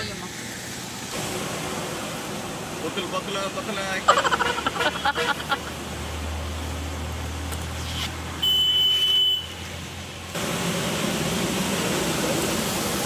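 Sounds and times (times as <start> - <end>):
car cabin drone: 10.3 - 13.0.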